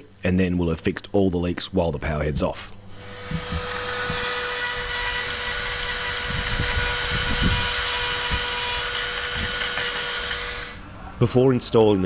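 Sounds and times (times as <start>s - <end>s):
die grinder grinding metal: 3.0s - 10.8s.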